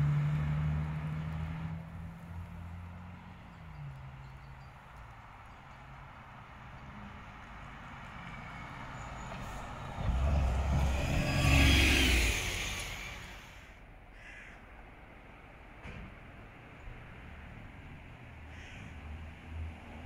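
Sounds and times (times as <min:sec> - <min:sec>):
bus driving past: 0:00.0 - 0:14.1.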